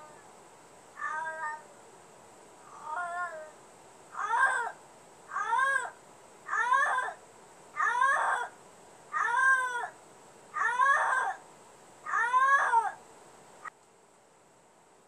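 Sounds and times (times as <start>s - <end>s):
cat meowing: 1.0s - 1.6s
cat chirp: 1.0s - 1.7s.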